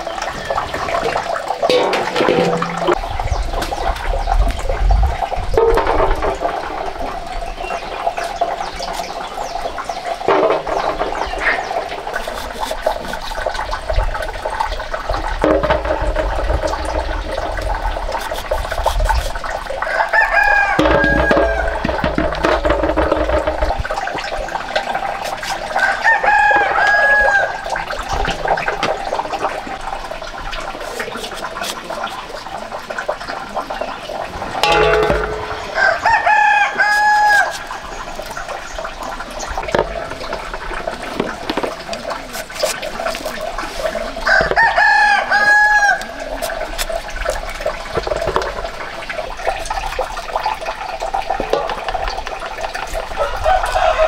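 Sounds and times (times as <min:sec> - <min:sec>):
rooster crowing: 0:19.8 - 0:21.8, 0:35.7 - 0:37.5, 0:44.3 - 0:46.0, 0:53.2 - 0:54.0.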